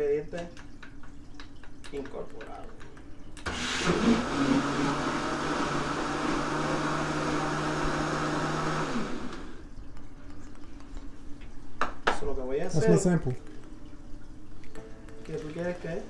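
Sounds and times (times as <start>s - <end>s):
blender motor running: 3.4s - 9.7s.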